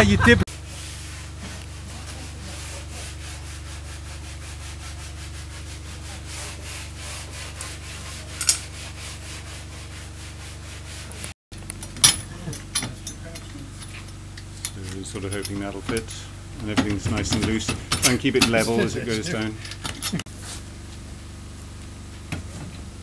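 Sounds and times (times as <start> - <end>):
metallic clicks and knocks: 11.6 - 18.8, 19.4 - 20.2.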